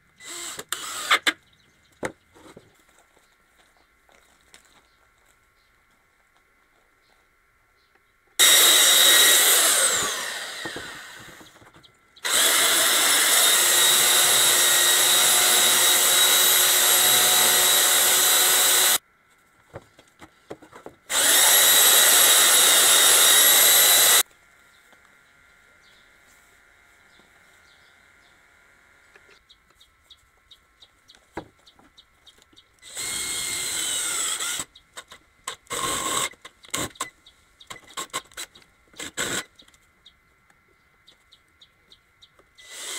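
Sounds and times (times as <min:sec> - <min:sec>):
power drill boring into wood: 0:00.2 - 0:01.4, 0:08.4 - 0:11.6, 0:12.2 - 0:19.0, 0:21.1 - 0:24.2, 0:32.8 - 0:34.7, 0:35.5 - 0:37.1, 0:39.0 - 0:39.5, 0:42.6 - 0:42.9.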